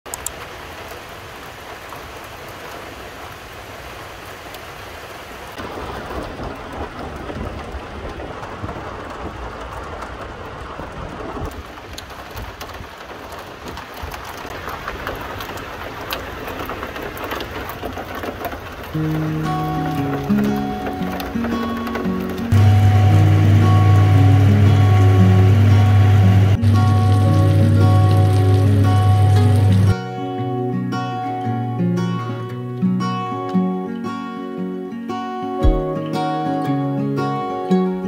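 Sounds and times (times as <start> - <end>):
heavy rain pouring: 0.1 - 32.6, 35.6 - 38.0
sharp raindrop hits: 5.5 - 30.0, 35.6 - 36.1.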